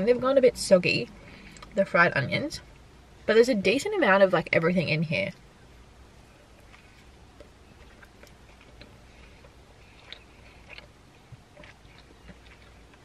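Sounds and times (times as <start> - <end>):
chewing clicks: 6.5 - 13.0.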